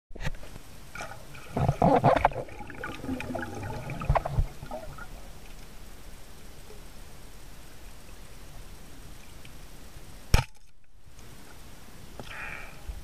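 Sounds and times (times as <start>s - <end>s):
water rushing and bubbling: 0.8s - 6.4s.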